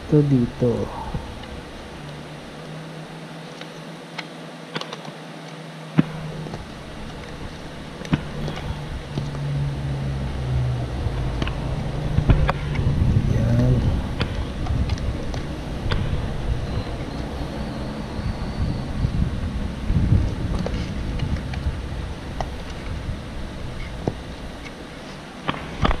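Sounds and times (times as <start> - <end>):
low rumbling noise: 0.0 - 26.0
steady low hum: 0.0 - 26.0.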